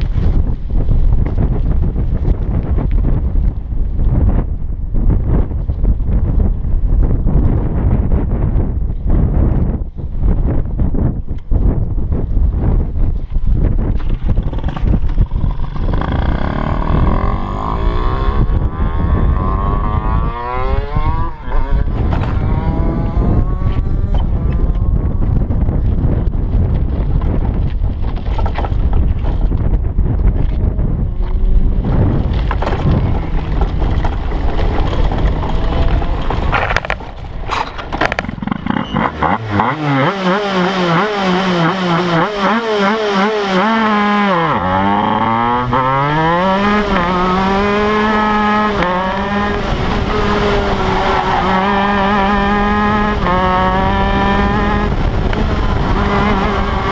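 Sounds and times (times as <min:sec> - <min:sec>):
wind buffeting: 0:00.0 - 0:56.9
two-stroke kart engine revving: 0:14.4 - 0:24.5, 0:32.6 - 0:37.0, 0:38.1 - 0:56.9.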